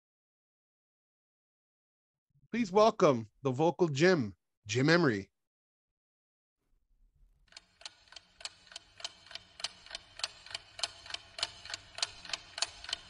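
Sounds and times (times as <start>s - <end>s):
clock ticking fast: 7.5s - 13.0s.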